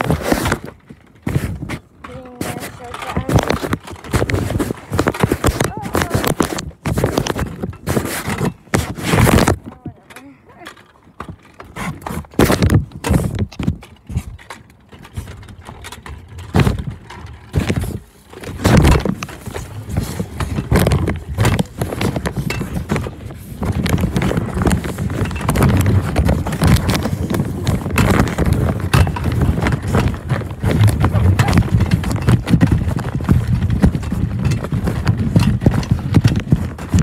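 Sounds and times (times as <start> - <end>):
knocks and scrapes: 0.0 - 37.0
bag fabric rubbing on microphone: 1.3 - 9.6.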